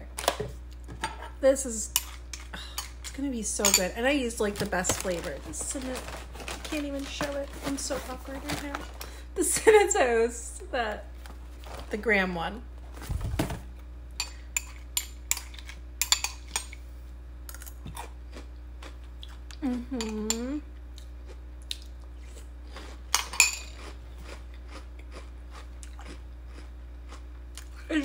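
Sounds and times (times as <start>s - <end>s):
chewing crunchy cereal: 17.5s - 19.9s, 20.9s - 27.9s
person humming: 19.5s - 20.7s.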